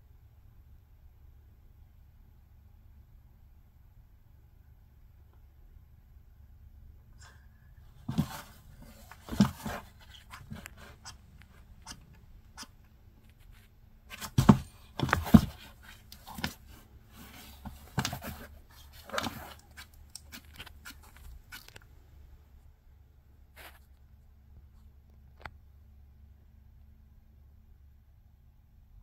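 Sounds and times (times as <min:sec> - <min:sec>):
frog thumping plastic enclosure: 0:08.0 - 0:12.7, 0:14.1 - 0:21.6.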